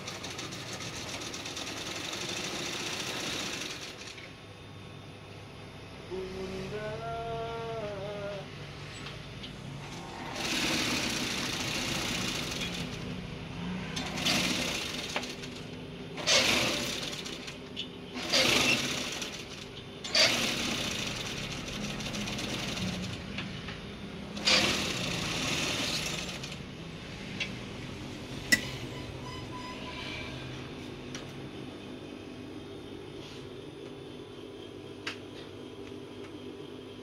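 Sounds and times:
sewing machine stitching: 0.0 - 4.2, 10.2 - 13.0, 13.8 - 15.6, 16.2 - 17.6, 18.2 - 23.2, 24.4 - 26.6.

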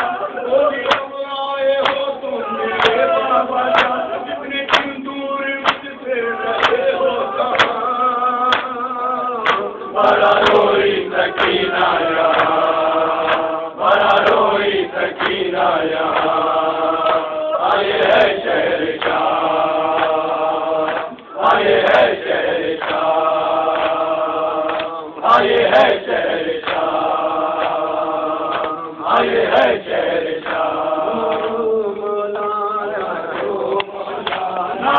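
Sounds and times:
man reciting into a microphone: 0.0 - 10.3, 30.9 - 34.9
men chanting together: 0.0 - 34.9.

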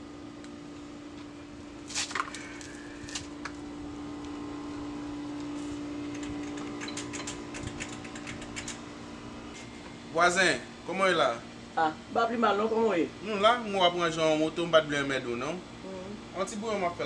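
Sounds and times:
steady low hum: 0.0 - 17.0
clicks and light rattles of parts: 6.0 - 8.8.

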